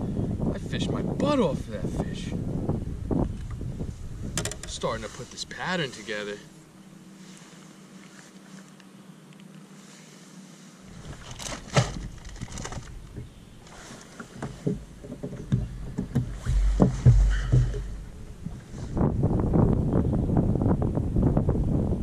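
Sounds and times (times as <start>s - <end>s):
faint hiss: 4.6s - 8.9s
low rumble: 15.5s - 21.5s.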